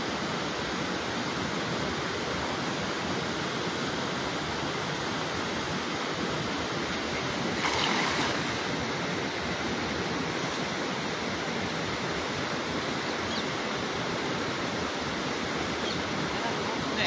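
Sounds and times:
river water rushing: 0.0s - 17.0s
wind: 0.0s - 17.0s
net splashing into water: 7.5s - 8.7s.

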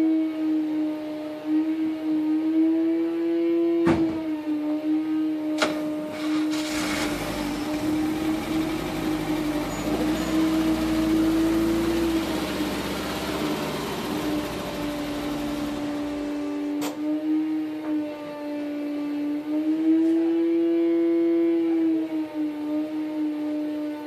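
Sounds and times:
van engine running under load: 5.6s - 20.4s.

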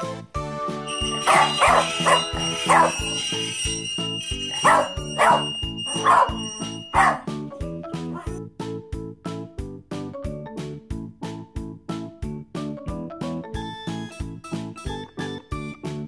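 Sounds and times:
dog barking: 1.2s - 3.1s, 4.5s - 7.3s
background music with beat: 6.8s - 16.0s.

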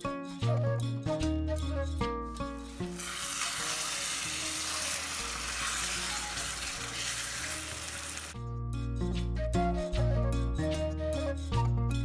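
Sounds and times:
soft background music: 0.0s - 12.0s
curry sizzling in a pan: 2.6s - 8.4s.

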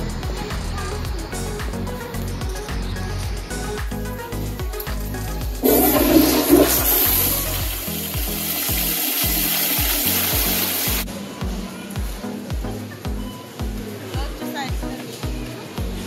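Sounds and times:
background music with low beat: 0.0s - 16.0s
toilet flushing: 5.6s - 11.1s.

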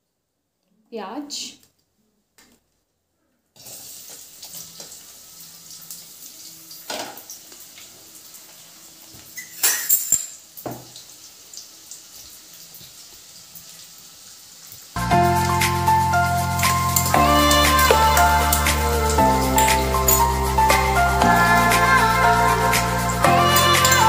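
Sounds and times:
onions sizzling in oil: 3.6s - 24.0s
music: 15.0s - 24.0s.

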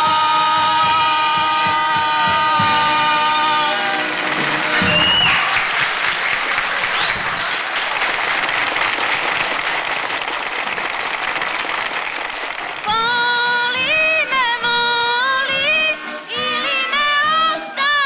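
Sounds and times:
audience applauding: 0.0s - 13.3s
music with held notes: 13.0s - 18.0s.

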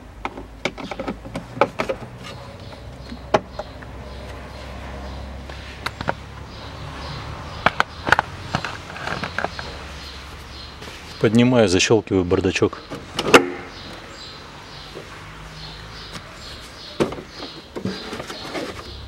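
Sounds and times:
glovebox clicks and knocks: 0.2s - 3.8s.

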